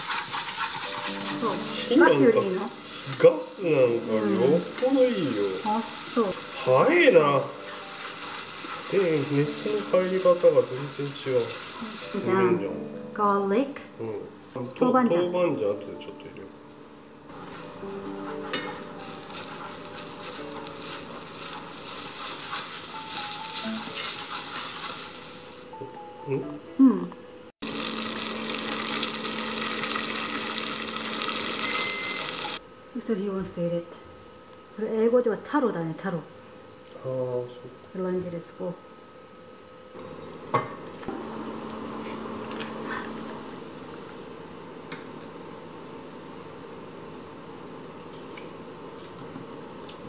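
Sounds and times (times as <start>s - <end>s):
chopsticks scraping a pan: 0.0s - 2.2s, 7.5s - 11.8s, 17.3s - 25.6s
meat sizzling in a saucepan: 0.0s - 25.8s, 27.6s - 32.6s, 40.0s - 44.7s.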